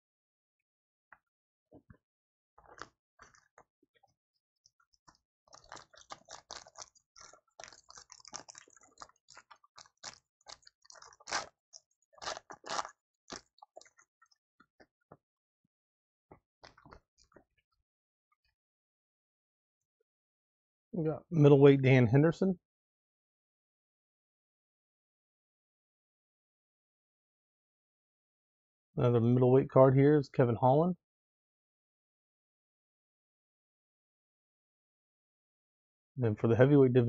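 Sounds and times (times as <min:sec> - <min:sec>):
foil wrapper crinkling and tearing: 0:05.5 - 0:14.0.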